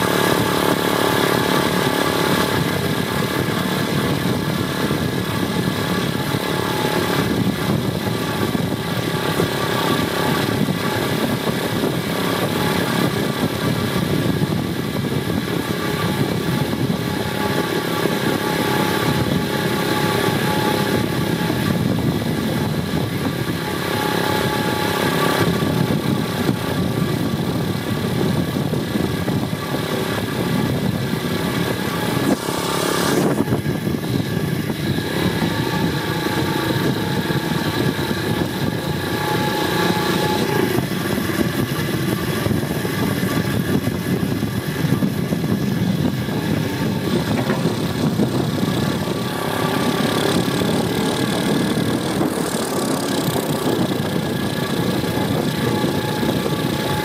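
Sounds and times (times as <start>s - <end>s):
motorbike engine running: 0.0s - 57.0s.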